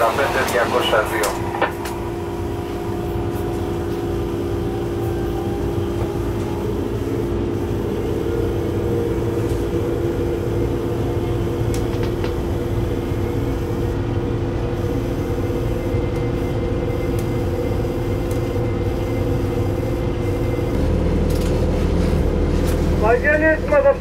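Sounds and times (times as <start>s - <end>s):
locomotive cab hum: 0.0s - 24.0s
train rumbling on track: 0.0s - 24.0s.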